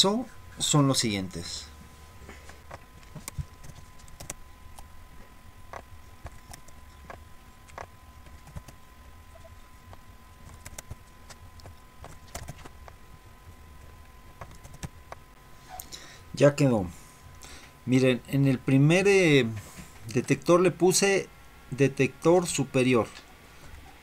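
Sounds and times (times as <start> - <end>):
low steady hum: 0.0 - 24.0
keyboard keys clicking: 3.1 - 4.4, 10.4 - 13.0, 14.4 - 15.2.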